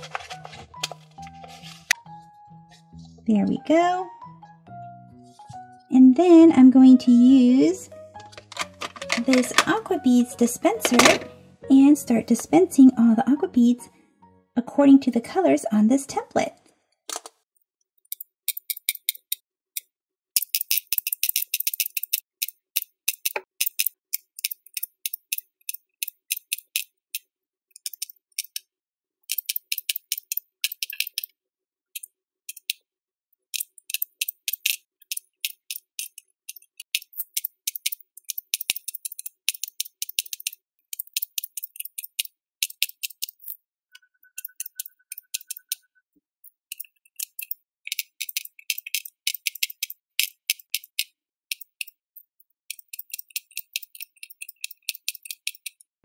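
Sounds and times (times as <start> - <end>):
small plastic clicks: 8.2 - 9.8, 18.0 - 32.8, 33.5 - 43.6, 46.4 - 55.9.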